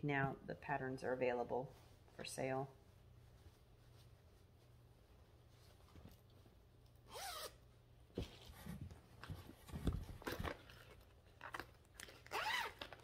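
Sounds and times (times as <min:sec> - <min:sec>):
fabric rustling and crinkling: 0:01.5 - 0:06.8
zipper being pulled open: 0:07.0 - 0:07.6, 0:12.3 - 0:13.0.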